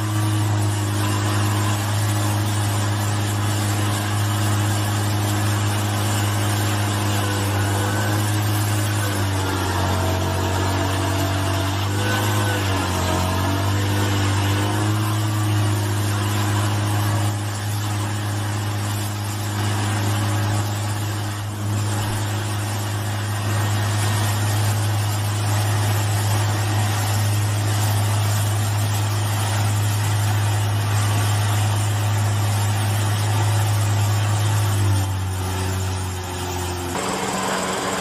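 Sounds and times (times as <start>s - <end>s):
stump grinder engine running: 0.0s - 38.0s
wood grinding hiss: 0.0s - 38.0s.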